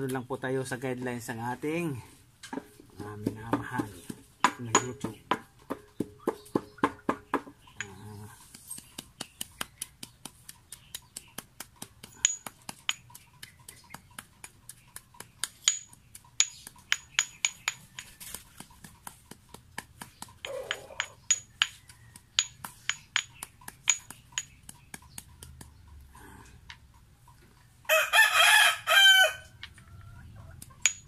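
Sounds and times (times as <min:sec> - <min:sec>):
pestle tapping stone mortar: 0:02.6 - 0:25.8, 0:30.6 - 0:31.0
rooster crowing: 0:27.9 - 0:29.7.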